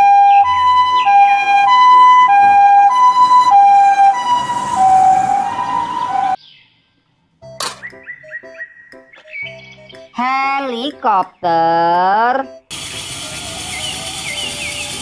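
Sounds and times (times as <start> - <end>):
ambulance two-tone siren: 0.0 - 6.4.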